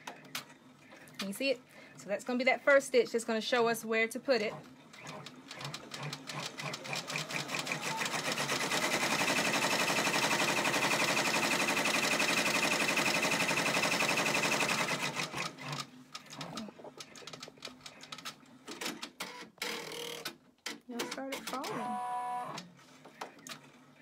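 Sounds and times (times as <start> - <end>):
embroidery machine stitching: 4.3 - 20.3.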